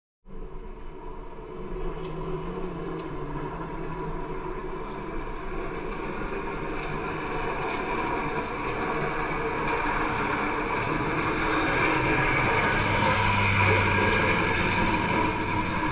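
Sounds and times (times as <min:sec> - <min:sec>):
diesel tractor engine running: 0:09.8 - 0:15.9.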